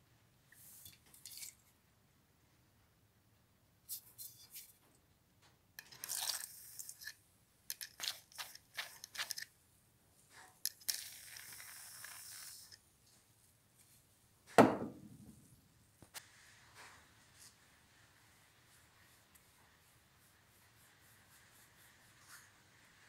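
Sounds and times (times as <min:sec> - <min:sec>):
aerosol can spraying hiss: 0:11.0 - 0:12.8
loud thump: 0:14.6 - 0:15.4.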